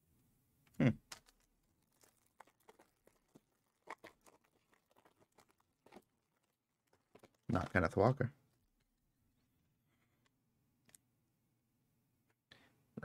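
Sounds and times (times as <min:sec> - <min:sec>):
wrapper crinkling and tearing: 0:01.0 - 0:08.9.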